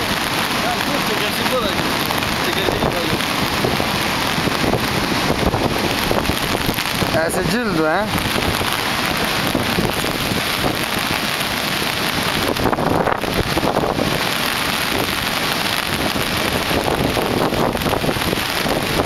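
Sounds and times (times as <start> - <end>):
river rushing over boulders: 0.0 - 19.0.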